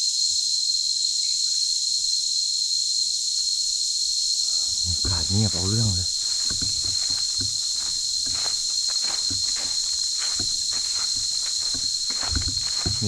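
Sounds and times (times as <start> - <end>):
insects droning: 0.0 - 13.0
footsteps on dry leaves: 4.5 - 13.0.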